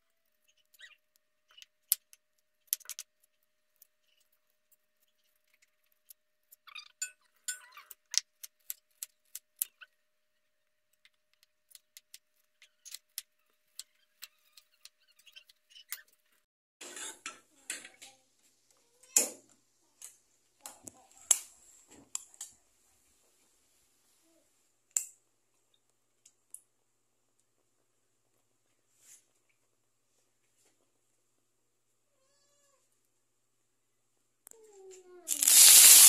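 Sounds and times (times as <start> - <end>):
hissing noise with clicks: 35.3 - 36.0
rustling: 35.3 - 36.0.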